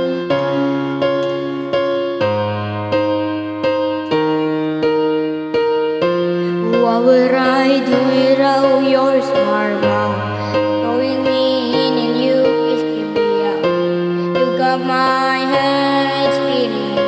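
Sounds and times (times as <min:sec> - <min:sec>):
piano playing repeated chords: 0:00.0 - 0:17.0
boy singing: 0:06.5 - 0:17.0.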